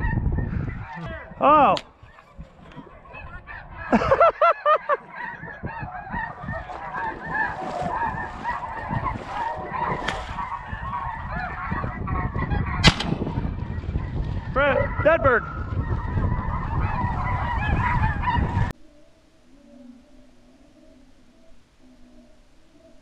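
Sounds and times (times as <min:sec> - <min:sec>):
geese calling: 0:00.0 - 0:18.8
loud close goose honks: 0:00.8 - 0:18.7
shotgun shot: 0:12.8 - 0:13.4.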